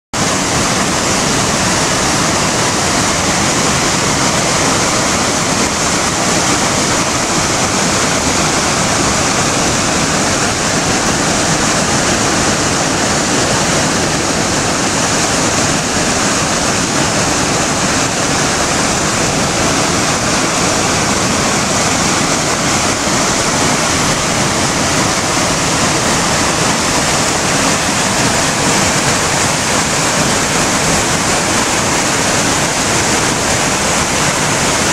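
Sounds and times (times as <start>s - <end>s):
river rapids rushing: 0.2s - 34.9s.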